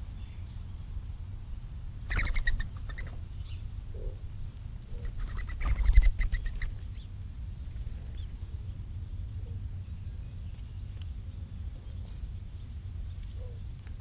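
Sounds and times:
dove wings whistling: 2.1 - 3.2, 4.9 - 7.0
wingbeats: 2.1 - 3.2, 4.8 - 7.0.

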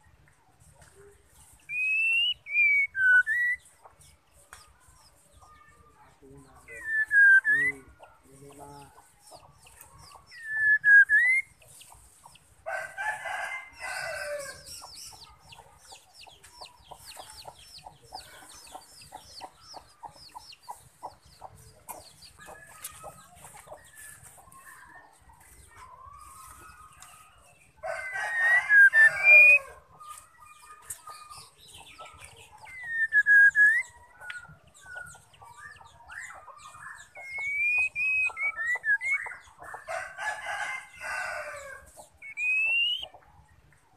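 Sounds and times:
bird whistles: 1.7 - 3.6, 6.8 - 7.8, 10.3 - 11.6, 32.7 - 34.4, 37.2 - 39.4, 42.2 - 43.1
rooster crowing: 12.7 - 14.7, 27.8 - 29.8, 39.9 - 41.9.

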